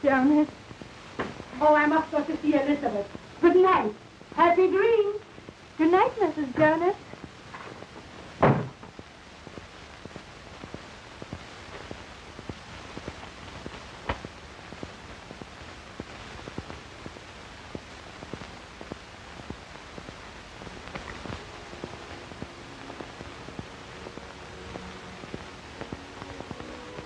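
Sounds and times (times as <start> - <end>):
crackles and clicks: 0.0 - 27.0
film soundtrack hiss: 0.0 - 27.0
loud thump: 8.4 - 8.9
sharp pop: 8.4 - 8.9.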